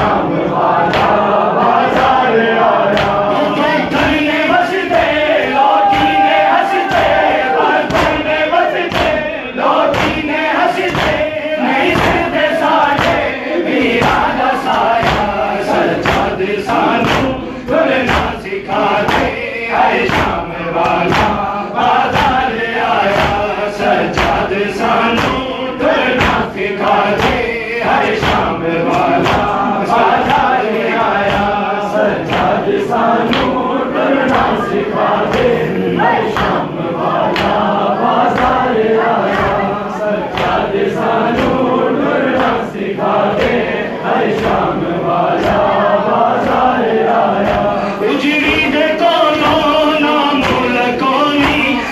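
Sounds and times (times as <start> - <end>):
crowd of men chanting: 0.0 - 51.9
hands beating on chests: 4.9 - 31.6, 32.2 - 35.6.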